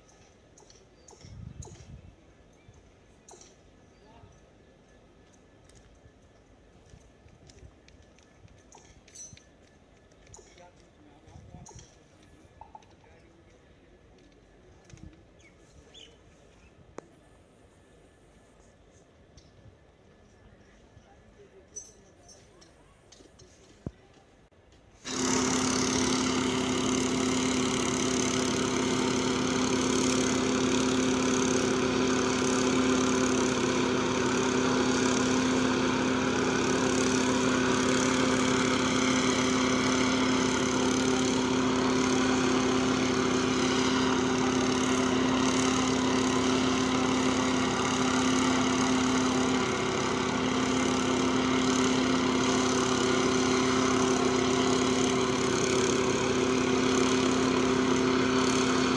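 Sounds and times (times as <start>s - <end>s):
small engine droning: 0.0s - 58.9s.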